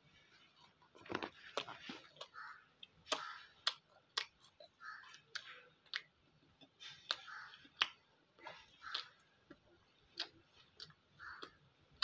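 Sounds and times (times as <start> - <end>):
person chewing food: 0.0 - 12.0
wet mouth clicks and lip smacks: 3.1 - 6.1, 6.9 - 11.5.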